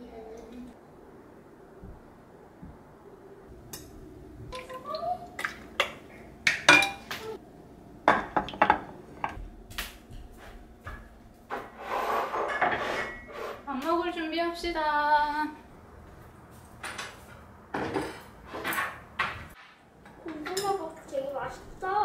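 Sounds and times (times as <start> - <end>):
ceramic dishes clinking: 5.8 - 7.1, 8.1 - 9.4.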